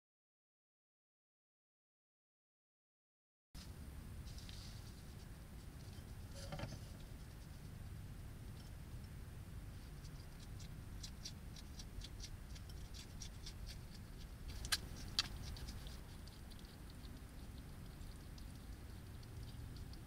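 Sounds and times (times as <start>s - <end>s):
low background noise: 3.6s - 20.0s
hedgehog chewing crunches: 9.8s - 20.0s.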